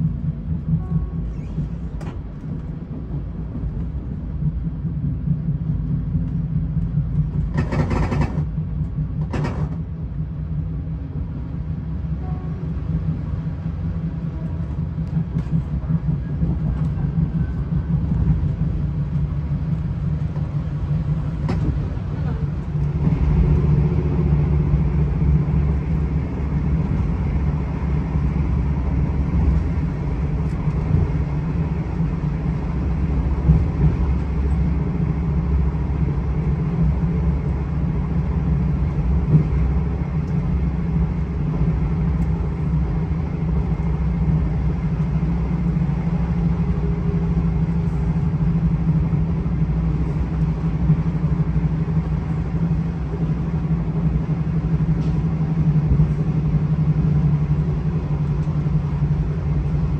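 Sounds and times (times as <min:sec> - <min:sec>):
coach engine and road rumble: 0:00.0 - 0:59.9.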